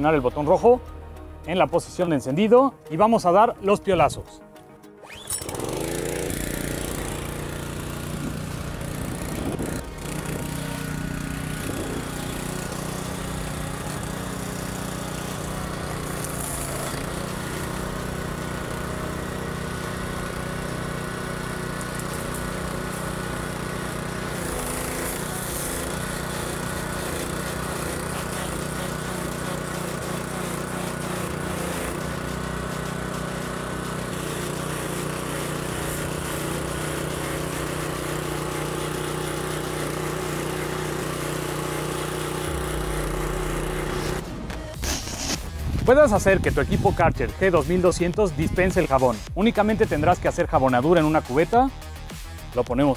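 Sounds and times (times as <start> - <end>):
high-pressure water jet hissing: 5.1 - 45.6
pressure washer engine running: 5.1 - 52.9.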